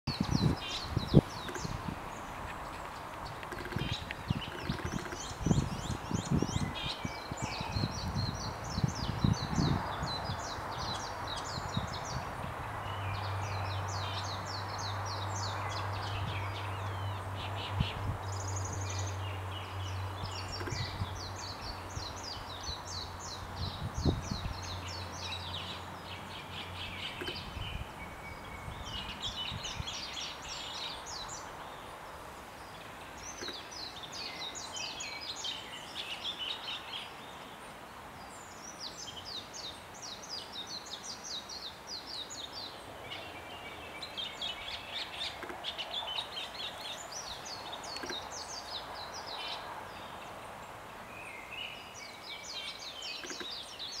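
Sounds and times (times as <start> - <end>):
starling singing: 0.1 - 8.3, 20.3 - 21.8.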